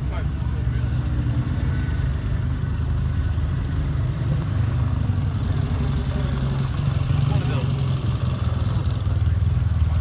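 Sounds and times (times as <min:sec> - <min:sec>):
car engine rumbling at low revs: 0:00.0 - 0:10.0.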